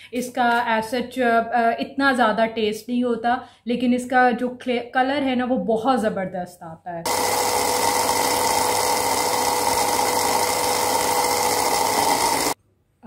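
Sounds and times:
electric grinder motor whine: 0:07.1 - 0:12.6.

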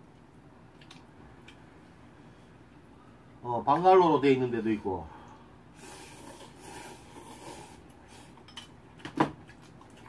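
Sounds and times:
eating clicks and smacks: 0:00.7 - 0:01.6
noodles slurped: 0:05.8 - 0:08.4.

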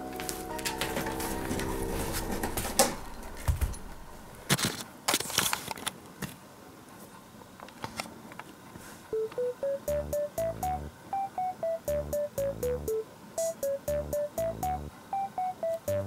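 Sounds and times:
synth melody: 0:00.0 - 0:04.5, 0:09.2 - 0:16.0.

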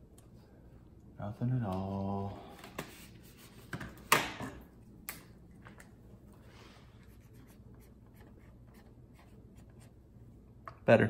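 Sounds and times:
marker scratching on tape: 0:07.0 - 0:10.0.

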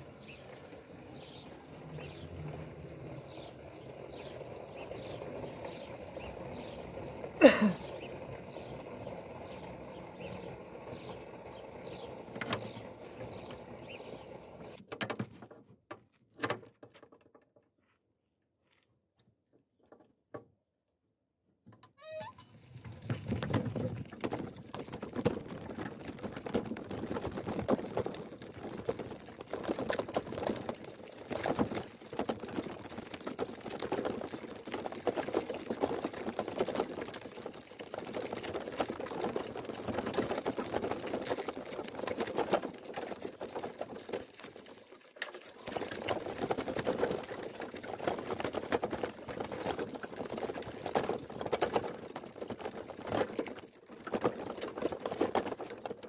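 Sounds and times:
rustling and rattling while walking: 0:01.1 - 0:20.5, 0:22.6 - 0:56.0
short squeak: 0:22.0 - 0:22.6.

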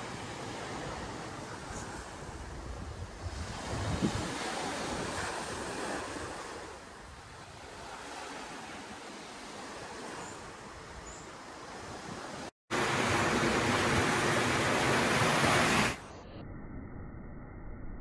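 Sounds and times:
wind on microphone: 0:00.0 - 0:08.8
surf washing: 0:00.0 - 0:16.1.

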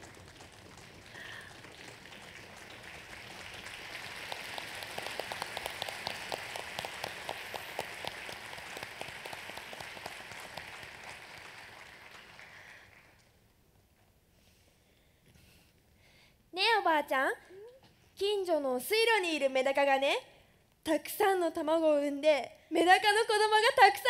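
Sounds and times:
audience applauding: 0:00.0 - 0:13.4.

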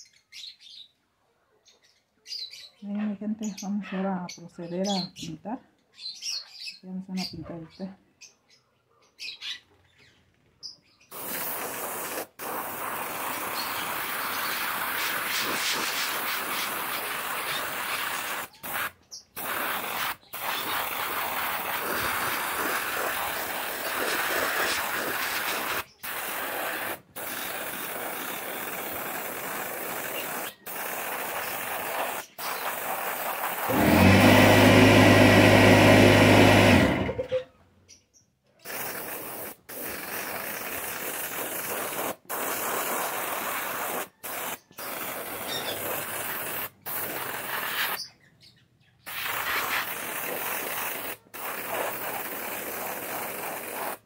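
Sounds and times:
spray paint hissing: 0:11.1 - 0:36.9, 0:38.6 - 0:48.1, 0:49.1 - 0:54.0.

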